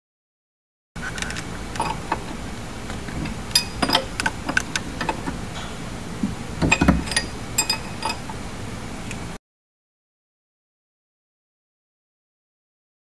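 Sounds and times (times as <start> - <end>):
steady low hum: 1.0 - 9.4
wrench clicking on metal nuts: 3.5 - 5.7, 6.6 - 8.4.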